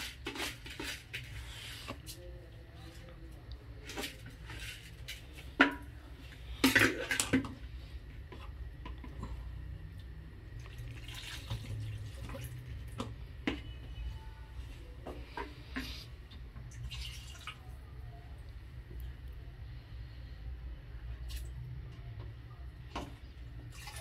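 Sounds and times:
tap water running and splashing: 10.6 - 13.1, 16.6 - 17.7, 23.0 - 24.0.

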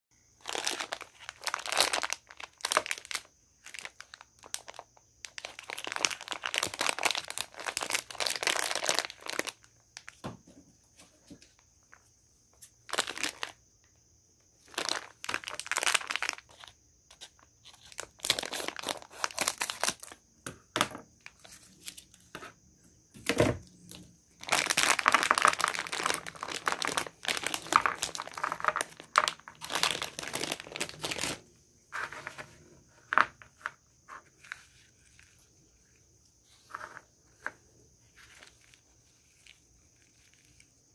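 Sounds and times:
plastic bag crinkling: 0.4 - 10.1, 12.8 - 13.6, 14.6 - 16.7, 23.9 - 32.4.

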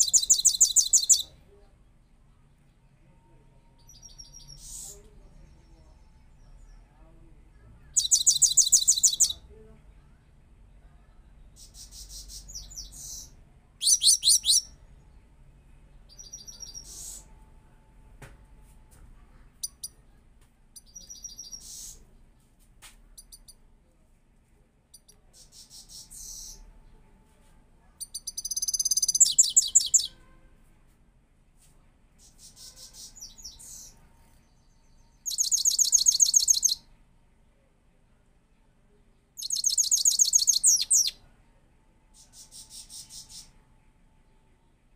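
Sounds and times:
goldfinch singing: 0.0 - 1.3, 8.0 - 9.4, 11.6 - 14.7, 28.1 - 30.1, 35.2 - 36.8, 39.4 - 41.2.

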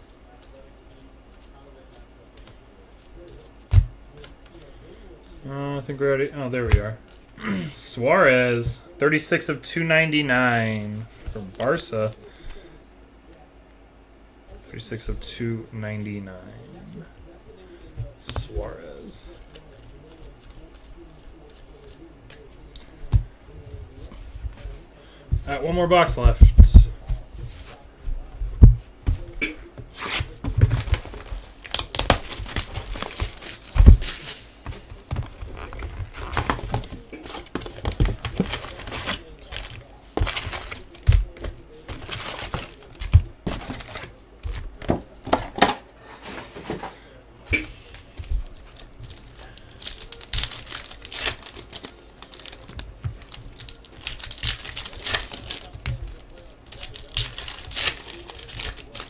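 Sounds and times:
plastic wrap tearing and crinkling: 30.0 - 34.4, 35.2 - 44.2, 48.4 - 59.0.

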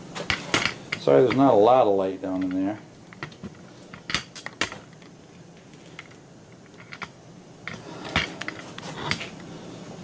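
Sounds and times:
hands handling tape and wiring: 2.2 - 9.5.

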